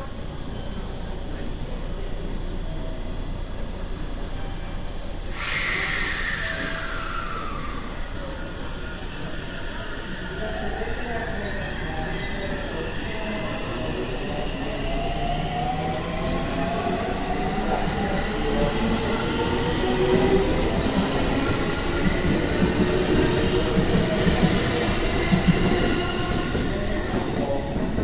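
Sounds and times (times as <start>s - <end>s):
train wheels clickety-clack: 20.0s - 28.0s.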